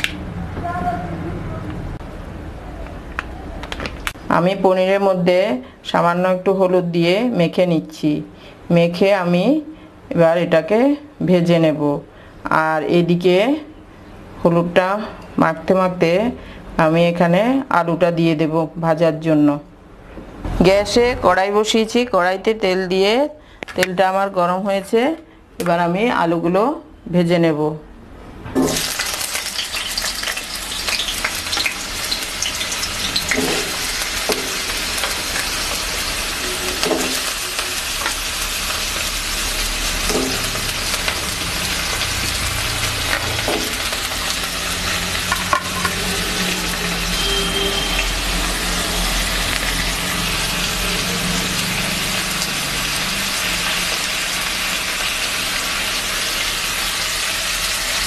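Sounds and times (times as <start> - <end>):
potatoes sizzling in oil: 28.6 - 58.0
utensil scraping and stirring: 33.1 - 38.2.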